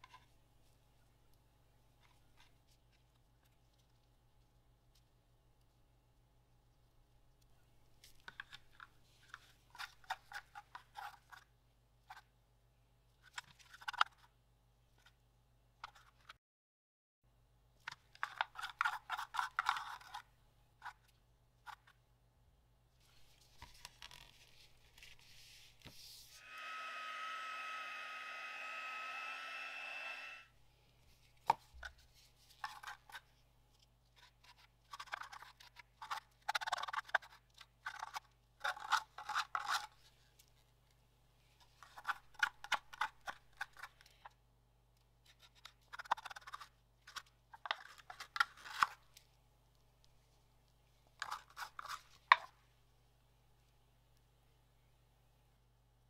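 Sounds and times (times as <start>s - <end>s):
steady electric hum: 26.3s - 30.5s.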